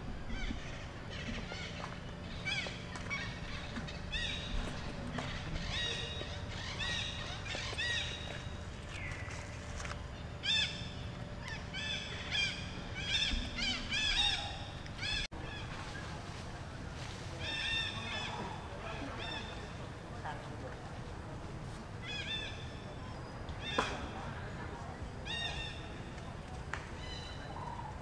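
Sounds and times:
monkeys squealing: 0.0s - 8.4s, 10.4s - 15.6s
steady low rumble: 0.0s - 23.6s.

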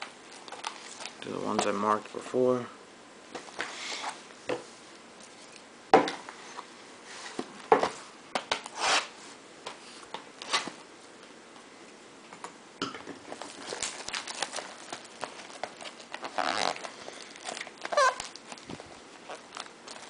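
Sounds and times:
plastic wrap rustling: 0.0s - 1.8s, 13.2s - 20.0s.

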